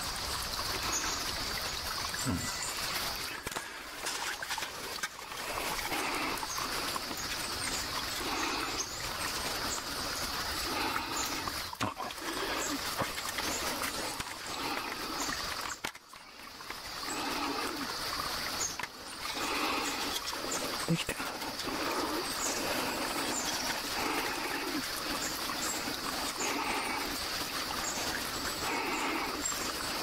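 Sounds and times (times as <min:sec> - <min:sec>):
stream water running: 0:00.0 - 0:30.0
faint bird chirps: 0:02.0 - 0:03.4
low animal-like call: 0:02.2 - 0:02.8.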